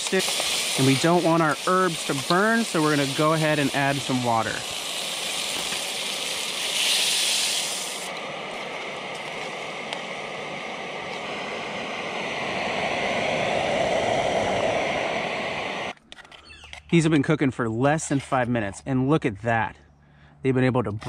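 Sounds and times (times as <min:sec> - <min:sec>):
pot bubbling simmer: 0:00.0 - 0:15.1
water hissing in hot oil: 0:00.0 - 0:15.9
gas burner hiss: 0:00.0 - 0:16.0.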